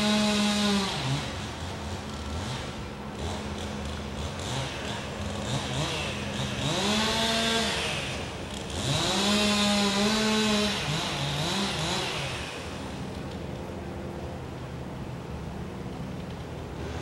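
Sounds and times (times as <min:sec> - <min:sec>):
small engine revving: 0:00.0 - 0:13.4.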